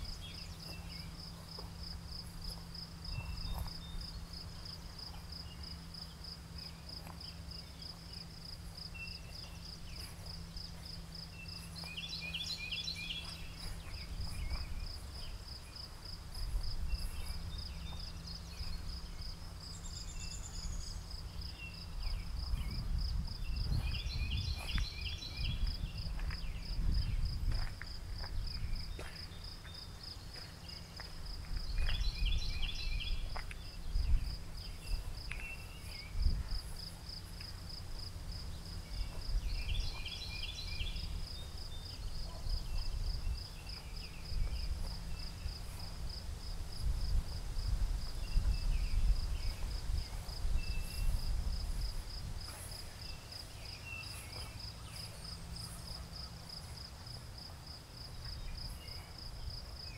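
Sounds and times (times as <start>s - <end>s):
crickets chirping: 0.0s - 59.9s
low wind rumble: 7.6s - 30.1s, 31.2s - 53.8s.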